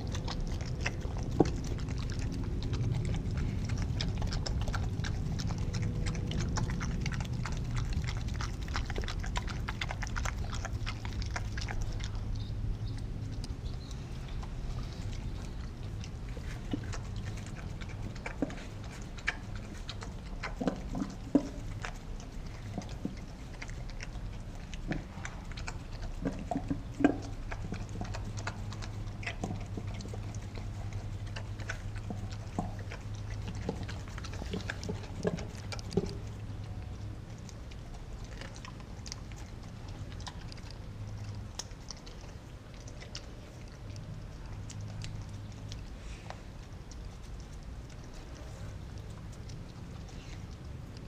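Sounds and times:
dog chewing from metal bowl: 0.0 - 51.0
low hum: 0.0 - 51.0.

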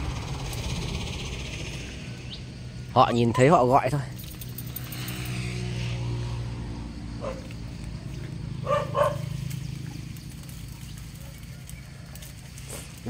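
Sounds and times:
low hum: 0.0 - 13.0
dog barking: 7.2 - 7.5, 8.6 - 9.4.

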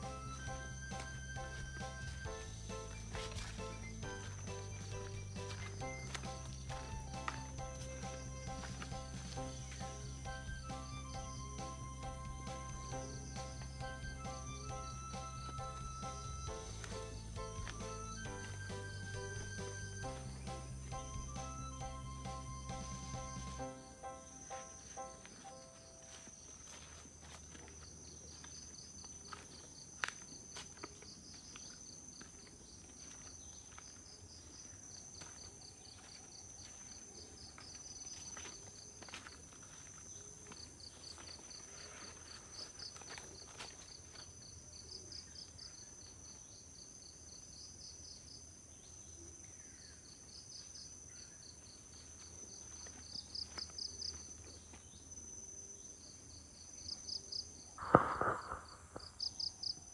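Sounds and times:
footsteps on leaf litter: 0.0 - 10.3, 15.2 - 20.6, 24.8 - 29.6
pulsing insect chirps: 0.0 - 26.3, 54.9 - 59.9
high insect trill: 0.0 - 59.9.

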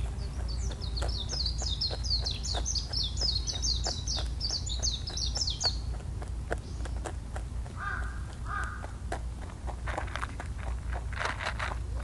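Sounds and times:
songbird chirping: 0.0 - 9.5.

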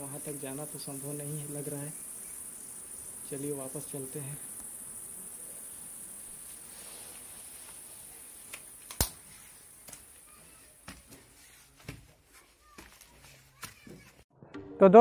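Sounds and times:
faint high buzz: 0.0 - 10.7
footsteps on stone steps: 7.2 - 14.2.

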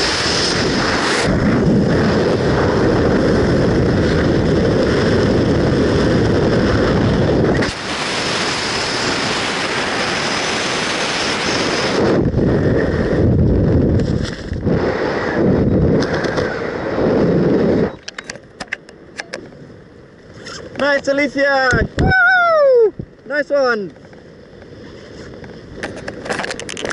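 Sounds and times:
wind rushing over camera: 0.0 - 26.9.

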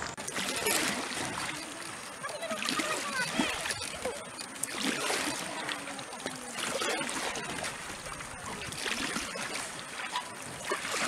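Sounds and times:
water splashing and trickling: 0.0 - 11.0.

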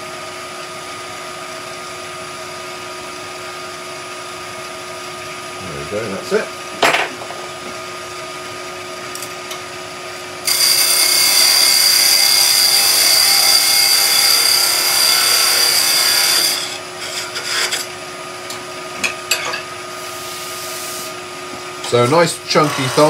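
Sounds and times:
lathe humming: 9.0 - 19.0, 19.7 - 23.0
turning tool scraping wood: 10.5 - 17.9, 21.9 - 23.0.

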